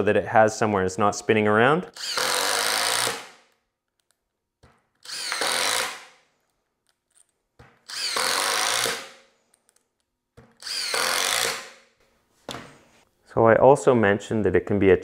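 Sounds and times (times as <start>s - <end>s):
cordless drill driving a screw: 2.0s - 3.4s, 5.0s - 6.2s, 7.8s - 9.2s, 10.6s - 11.9s.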